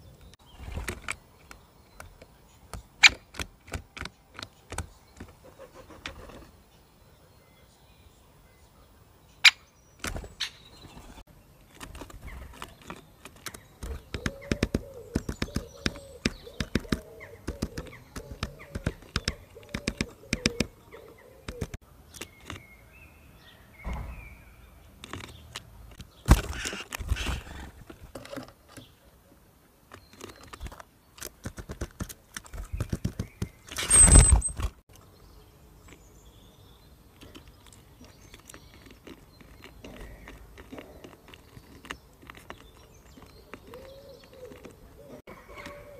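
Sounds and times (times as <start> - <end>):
birds pecking at feeder: 0.4 - 6.6, 10.0 - 22.8, 24.9 - 29.1, 29.8 - 45.9
loud bumps: 23.8 - 24.7.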